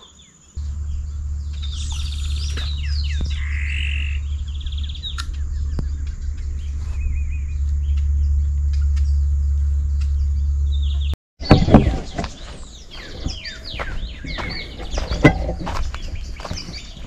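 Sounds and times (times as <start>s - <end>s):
birds trilling and chirping: 0.0s - 17.0s
steady low rumble: 0.6s - 11.2s.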